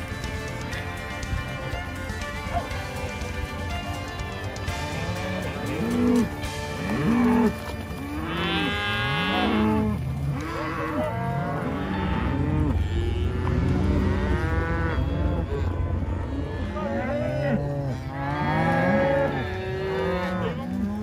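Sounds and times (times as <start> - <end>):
cattle mooing: 4.8 - 21.0
low rumble: 7.6 - 18.8.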